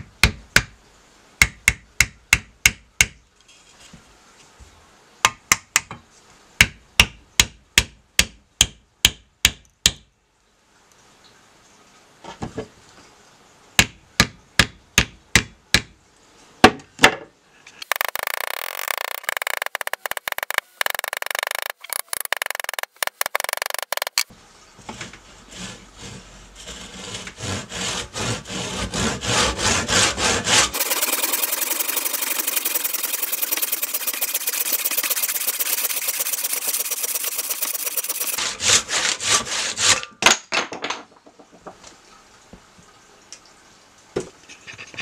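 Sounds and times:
handsaw cutting wood: 17.8s - 24.2s, 25.4s - 40.0s
hammer knocking wooden wedge: 17.8s - 24.3s.

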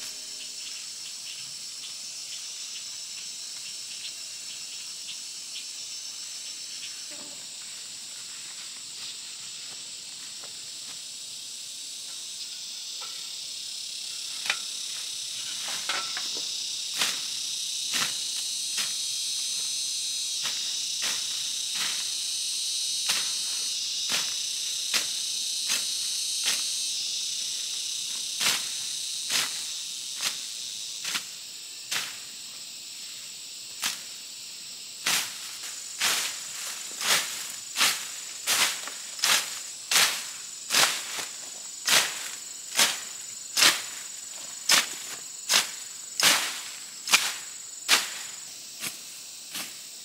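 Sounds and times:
insects droning: 0.0s - 50.0s
machete chopping undergrowth: 17.9s - 18.2s, 35.0s - 49.8s.

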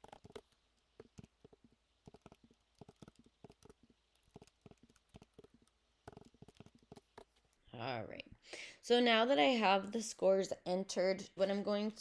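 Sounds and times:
faint keyboard typing: 0.0s - 7.7s.

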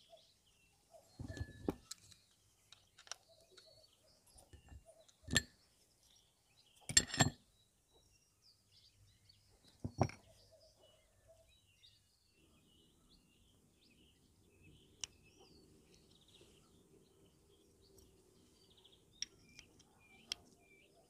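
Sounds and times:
steel parts clinking: 1.2s - 2.2s, 4.6s - 5.5s, 6.9s - 7.4s.

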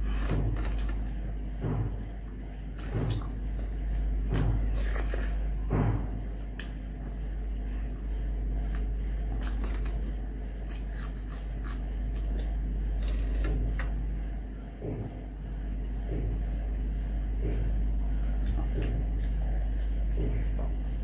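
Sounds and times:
steady low hum: 0.0s - 21.0s
chewing with mouth clicks: 2.8s - 5.6s, 7.8s - 14.0s, 17.6s - 20.8s.

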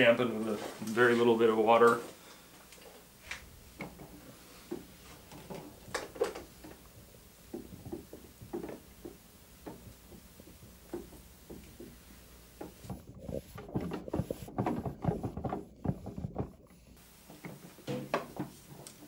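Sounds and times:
rag wiping metal: 6.5s - 17.0s.

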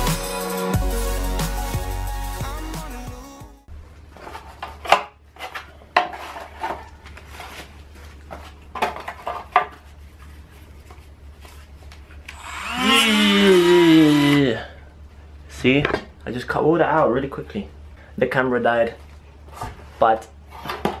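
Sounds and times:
rotary tool cutting with whine: 12.3s - 14.5s.

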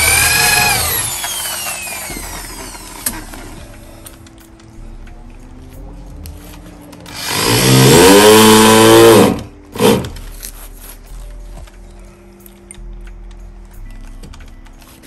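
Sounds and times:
electric drill motor: 0.0s - 3.8s, 7.1s - 10.2s.

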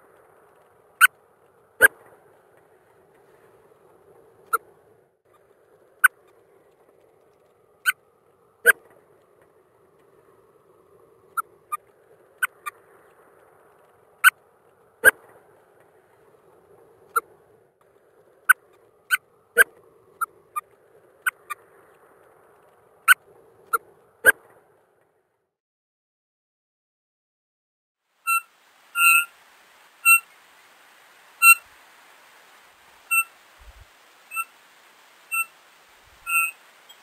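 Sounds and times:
faint steady low noise: 0.0s - 25.4s, 28.0s - 37.0s
bird giving sharp clipped calls: 36.2s - 37.0s.

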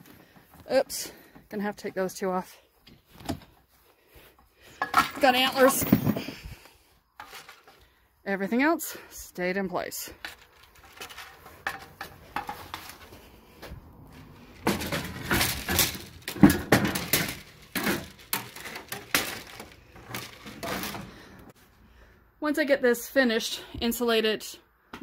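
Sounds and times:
tools clattering and knocking: 4.7s - 6.5s, 7.2s - 7.8s, 10.1s - 13.3s, 14.1s - 21.5s.

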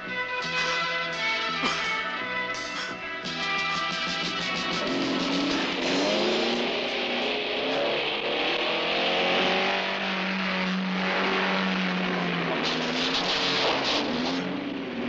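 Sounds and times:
car engine revving: 0.0s - 15.0s
tyres hissing on dirt road: 4.6s - 14.8s.

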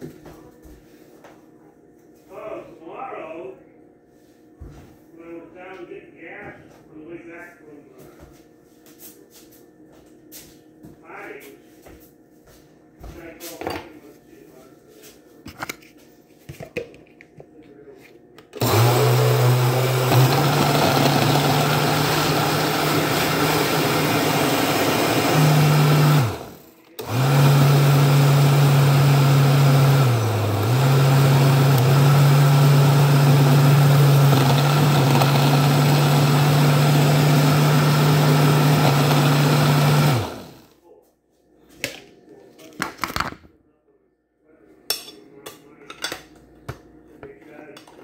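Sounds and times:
blender running: 18.5s - 40.7s.

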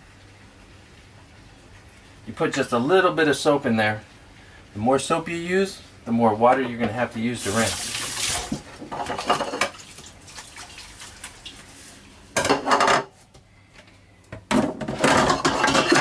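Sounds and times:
dishes clattering in a sink: 7.6s - 10.1s, 12.4s - 13.2s, 14.4s - 16.0s.

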